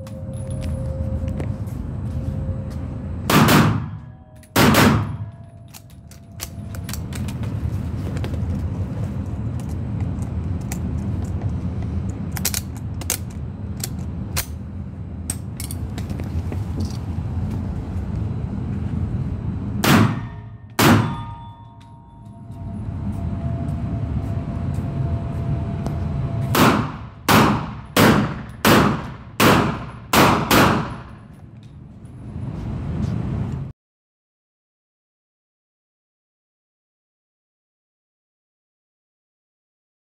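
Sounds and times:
low rumble with faint ticks: 0.0 - 1.8, 4.0 - 14.6, 21.6 - 26.7, 30.9 - 33.7
pistol shots echoing: 3.3 - 4.0, 4.6 - 5.2, 19.8 - 21.4, 26.6 - 31.1.

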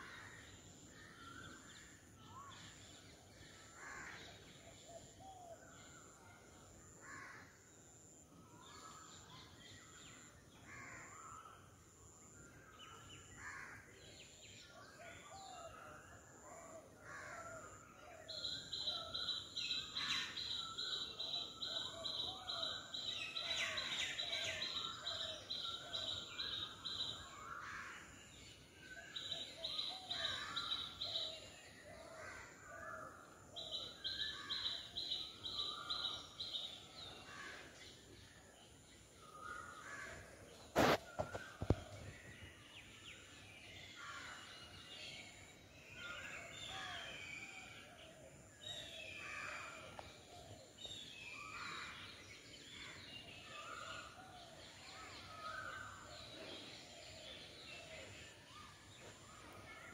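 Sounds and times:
birds calling: 39.3 - 42.2.

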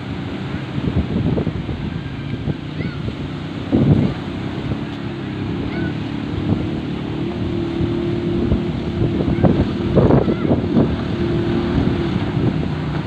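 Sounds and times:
boat engine running: 0.0 - 13.0
wind buffeting microphone: 0.0 - 13.0.

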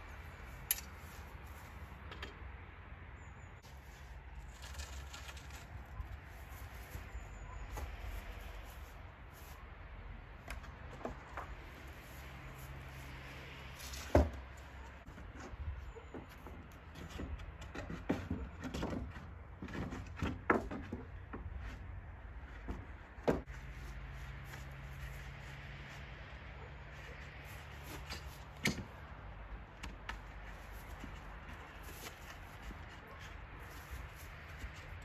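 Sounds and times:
wooden planks knocking: 16.1 - 21.8, 22.4 - 23.5.

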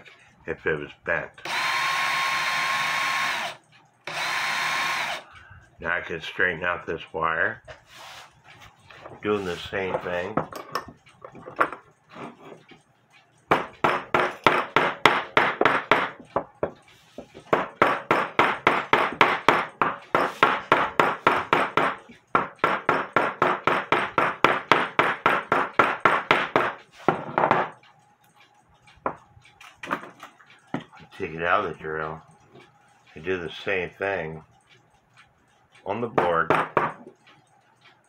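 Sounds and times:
hammer tapping wire on wood: 13.5 - 27.8, 36.1 - 37.2.

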